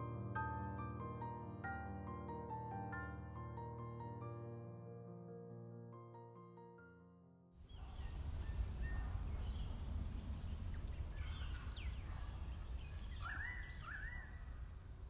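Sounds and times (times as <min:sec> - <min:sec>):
birds calling: 0:07.7 - 0:15.0
steady low rumble: 0:07.8 - 0:15.0.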